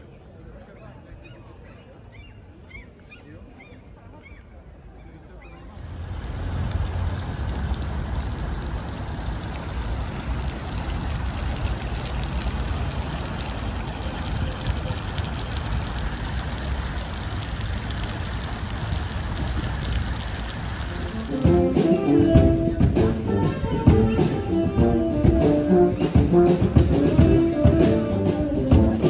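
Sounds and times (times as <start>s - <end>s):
fountain water splashing: 5.8s - 29.0s.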